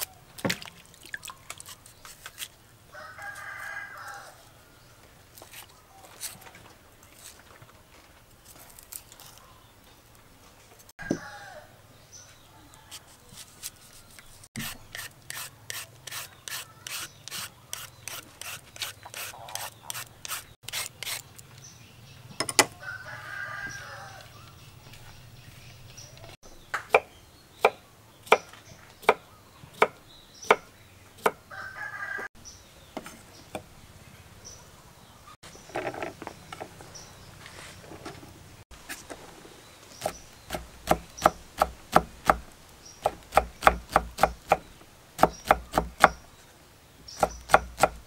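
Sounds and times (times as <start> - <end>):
peeler scraping fruit: 12.9 - 21.4
knife chopping on wooden board: 40.0 - 46.2, 47.2 - 48.0.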